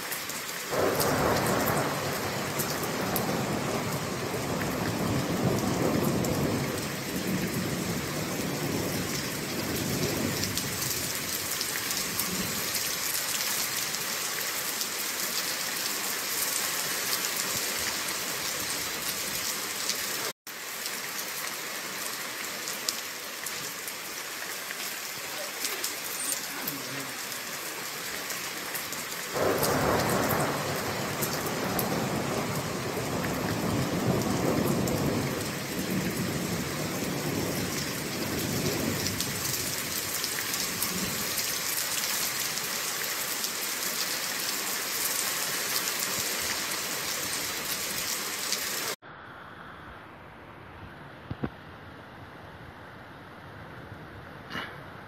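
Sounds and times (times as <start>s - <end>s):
heavy rain on a street: 0.0s - 55.0s
thunder rumbling: 0.7s - 11.1s, 29.3s - 41.3s.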